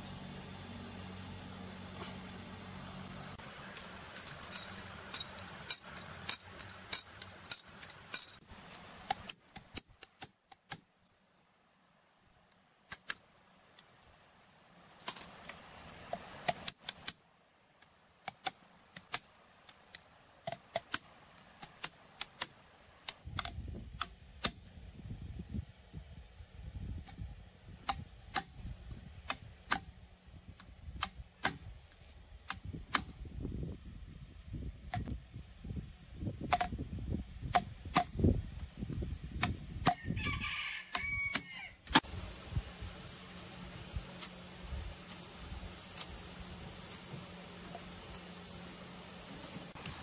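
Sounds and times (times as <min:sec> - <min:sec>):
low hum: 0:00.0 - 0:09.2, 0:41.9 - 0:50.0
rooster crowing: 0:40.0 - 0:41.8
steady high hiss: 0:41.7 - 0:50.0.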